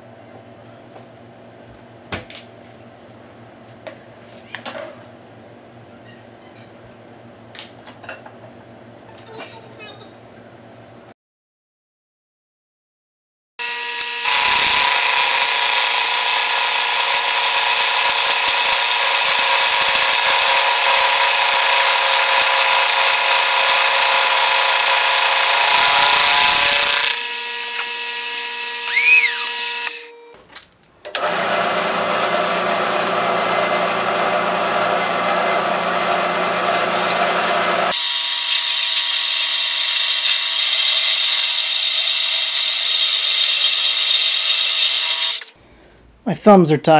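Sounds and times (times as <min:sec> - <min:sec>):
milling machine cutting steel: 0:13.6 - 0:30.1, 0:31.2 - 0:45.5
bandsaw cutting steel: 0:13.6 - 0:30.2, 0:31.2 - 0:45.6.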